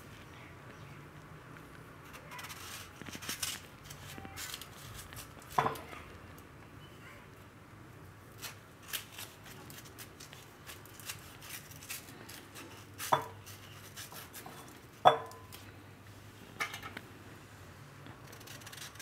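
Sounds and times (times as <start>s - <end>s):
knife cutting fruit: 18.2s - 19.0s.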